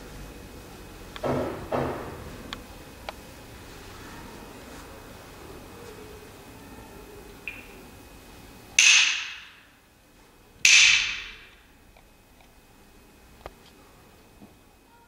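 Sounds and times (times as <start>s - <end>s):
wooden clappers striking: 8.8s - 9.8s, 10.6s - 11.7s.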